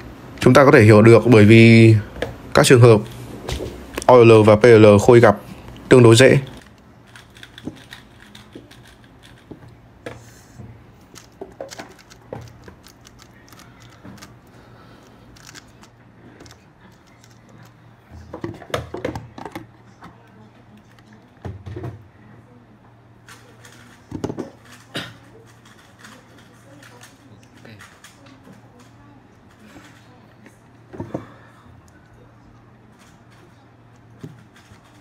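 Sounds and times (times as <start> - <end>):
faint low hum: 0.0 - 35.0
plastic puzzle cubes clicking: 6.5 - 9.6, 11.1 - 17.7, 25.5 - 30.0.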